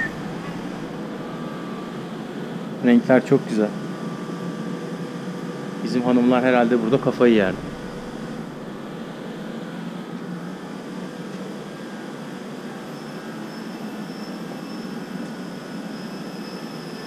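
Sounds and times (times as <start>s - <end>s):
steady background drone: 0.0s - 13.0s
faint high whine: 0.0s - 17.0s.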